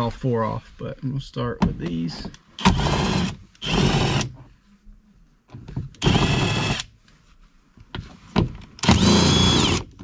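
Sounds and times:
cordless drill motor whine: 2.6s - 4.3s, 6.0s - 6.9s, 8.8s - 10.0s.

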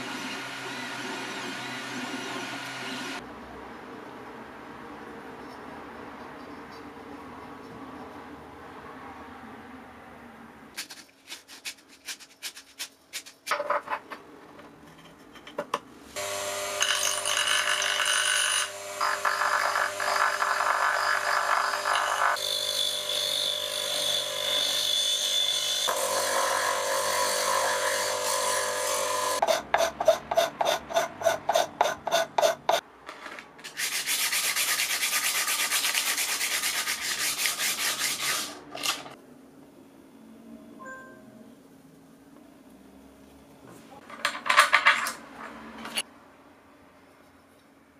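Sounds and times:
sandpaper rubbing plastic: 10.8s - 13.4s, 33.6s - 38.7s
bench grinder motor humming: 16.2s - 29.4s.

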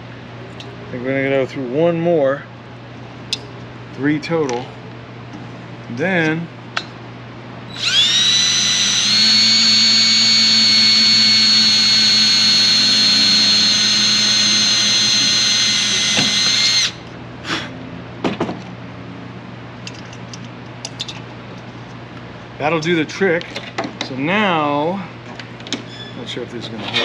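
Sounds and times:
cordless drill whining: 7.7s - 17.0s.

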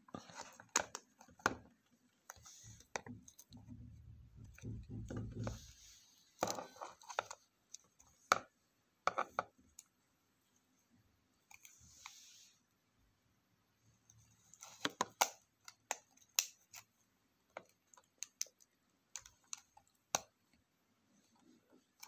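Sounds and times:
fingernails tapping plastic: 3.7s - 5.7s.

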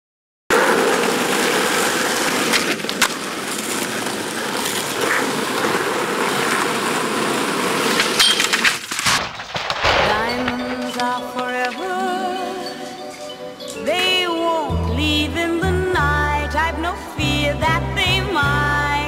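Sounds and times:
skateboard wheels rolling on asphalt: 0.5s - 9.0s
skateboard clacking against a curb: 0.6s - 9.0s.

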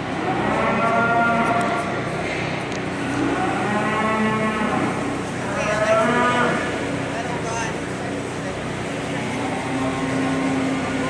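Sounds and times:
cattle mooing: 0.2s - 1.8s, 3.0s - 6.8s, 9.1s - 11.0s.

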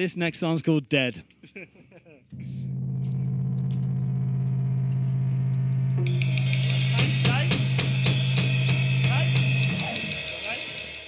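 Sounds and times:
held low note: 2.4s - 10.2s
cymbal wash: 2.6s - 11.0s
drum kit beat: 6.0s - 11.0s.

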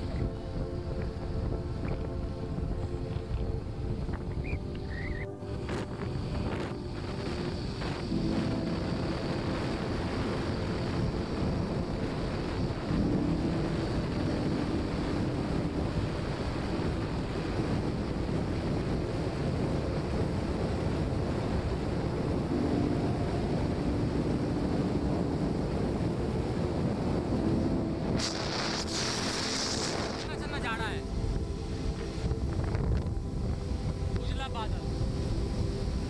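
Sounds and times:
faint hum: 0.0s - 36.0s
wind buffeting microphone: 0.0s - 36.0s
short hiss: 28.2s - 30.4s.

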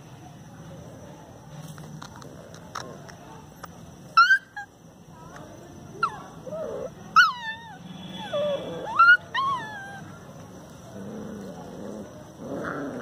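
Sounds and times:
puppies whimpering and squealing: 4.2s - 4.7s, 6.0s - 10.1s.

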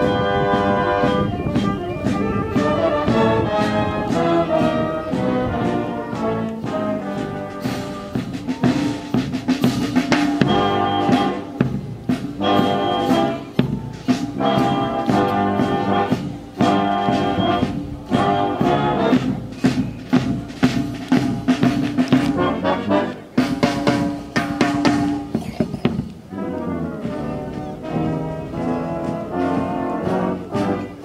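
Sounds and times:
brass band playing: 0.0s - 31.0s
drum strikes: 6.1s - 22.7s, 23.3s - 26.3s.

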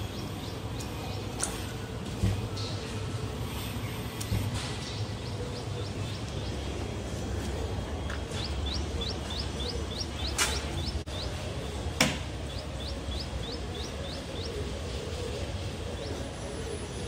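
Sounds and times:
small bird chirping: 8.0s - 11.4s, 12.4s - 14.7s.

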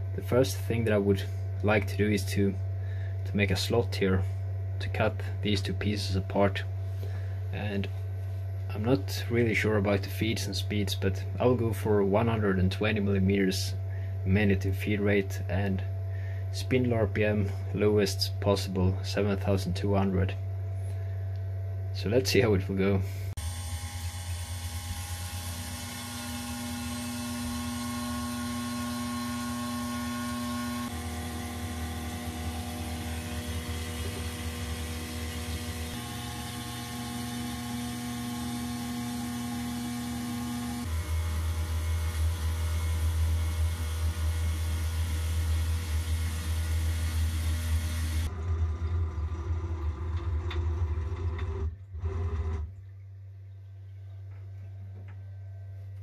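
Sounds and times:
router spindle cutting metal: 23.4s - 49.1s.

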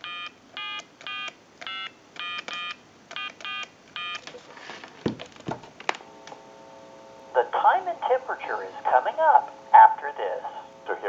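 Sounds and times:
keypad dialing tones: 0.0s - 4.3s.

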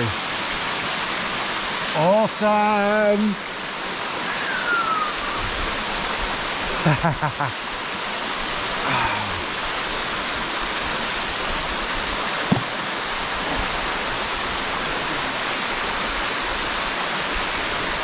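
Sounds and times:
waterfall rushing: 0.0s - 18.0s
brief knock: 12.5s - 12.8s.

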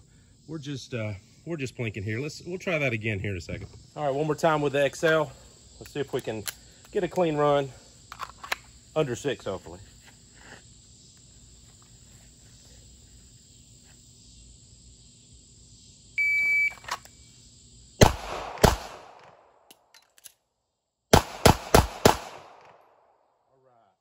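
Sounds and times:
shot timer beep: 16.2s - 16.8s
pistol shots: 18.0s - 19.4s, 21.1s - 23.0s.

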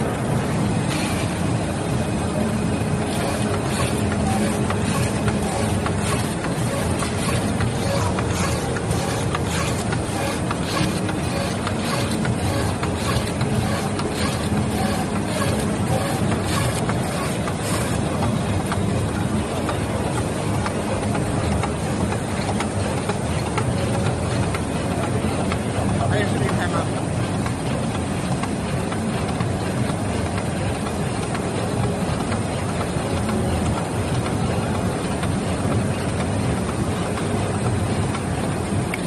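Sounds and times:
label cutter running: 0.0s - 27.8s.

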